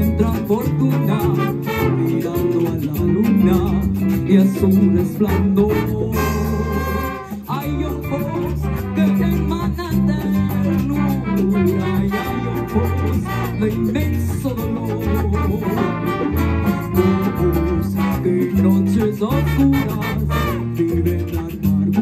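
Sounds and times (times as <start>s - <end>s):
drums: 0.0s - 12.0s
bass line: 0.0s - 22.0s
guitars: 0.0s - 22.0s
keyboard: 0.0s - 22.0s
horn section: 1.3s - 2.3s, 5.3s - 7.5s, 8.5s - 9.5s, 10.8s - 13.9s, 14.9s - 20.9s.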